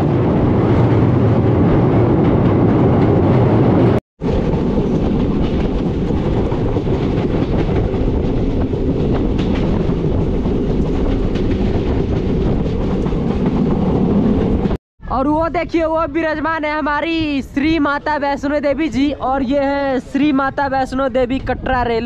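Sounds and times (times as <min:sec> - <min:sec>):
train wheels rumbling on rails: 0:00.0 - 0:14.8.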